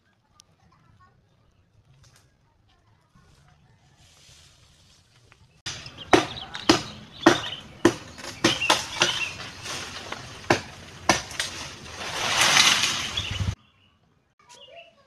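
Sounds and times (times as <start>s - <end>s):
chopping strikes on wood: 5.7s - 11.7s.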